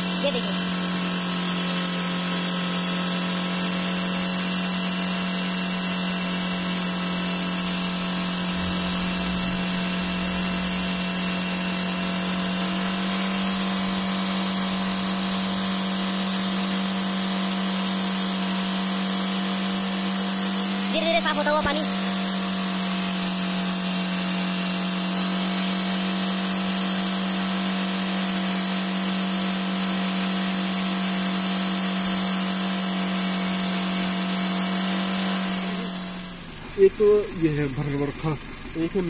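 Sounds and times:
car engine idling: 7.8 - 15.3, 35.7 - 39.0.

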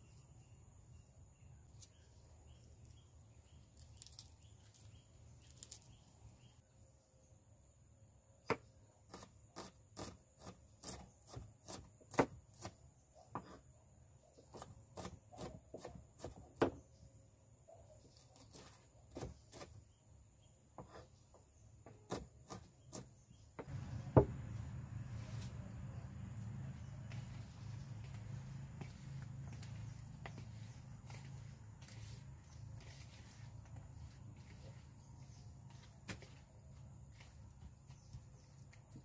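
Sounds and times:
knife chopping on wooden board: 21.8 - 24.4.

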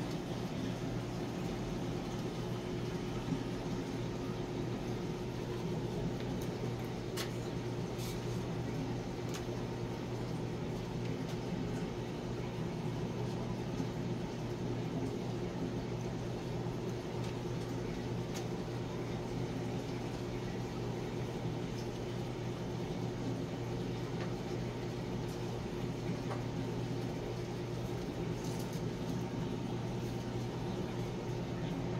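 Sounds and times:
air pump low hum: 0.0 - 9.1.

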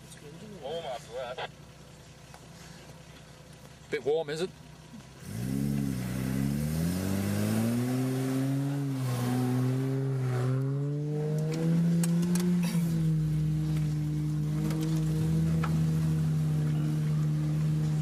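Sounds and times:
car engine revving hard: 5.2 - 18.0.

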